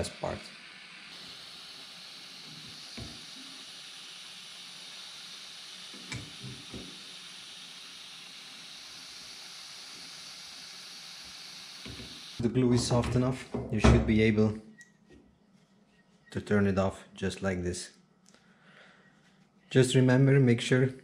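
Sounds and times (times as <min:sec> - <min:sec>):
butane torch hissing: 0:00.0 - 0:12.5.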